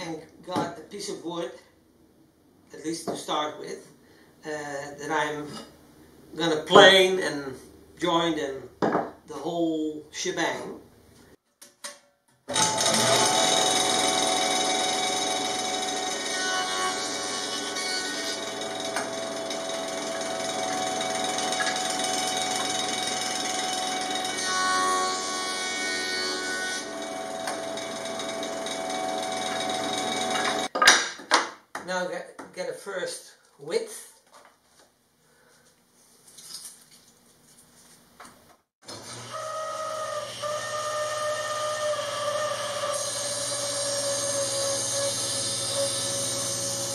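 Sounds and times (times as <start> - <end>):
table saw cutting board: 12.5 - 30.7, 38.8 - 46.9
woodworking jointer whirring: 12.5 - 30.7, 38.8 - 46.9.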